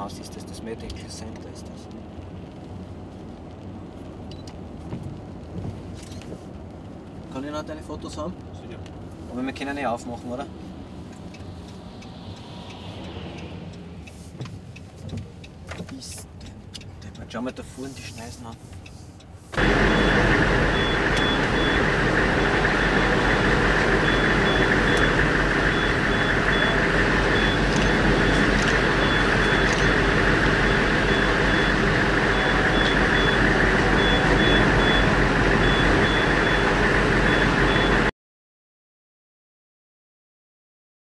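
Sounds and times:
heavy machinery running: 19.6 - 38.1
reversing alarm beeping: 19.6 - 38.1.

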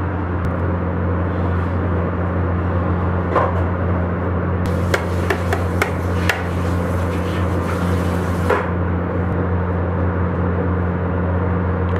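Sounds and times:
steady low hum: 0.0 - 11.9
kitchen utensils knocking: 4.8 - 6.5.

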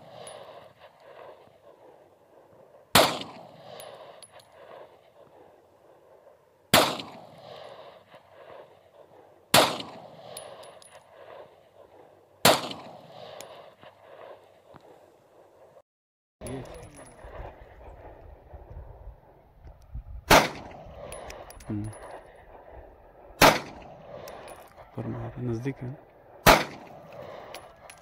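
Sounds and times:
pistol shots: 2.9 - 5.3, 6.7 - 8.7, 9.5 - 14.3, 20.3 - 21.4, 23.4 - 24.5, 26.4 - 28.0.

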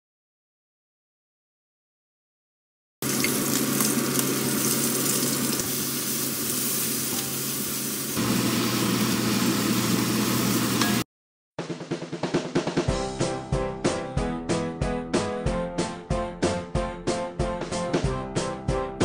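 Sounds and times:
prawns sizzling in a wok: 3.0 - 11.0.

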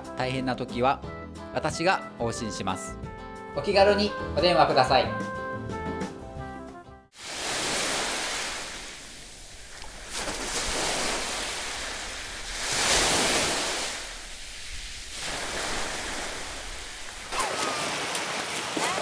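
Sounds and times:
surf washing on a beach: 7.2 - 19.0.

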